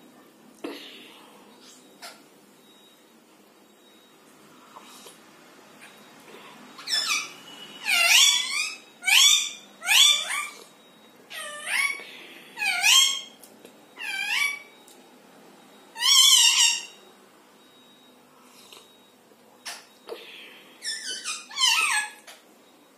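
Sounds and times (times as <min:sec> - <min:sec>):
parakeets calling shrilly: 0:06.8 - 0:10.6, 0:11.3 - 0:12.0, 0:12.6 - 0:13.4, 0:14.0 - 0:14.7, 0:16.0 - 0:17.0, 0:20.8 - 0:22.2.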